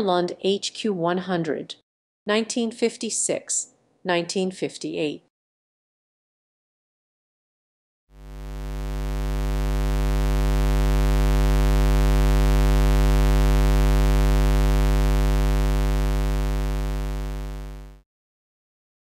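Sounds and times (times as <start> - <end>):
electrical mains hum: 8.2 - 18.0.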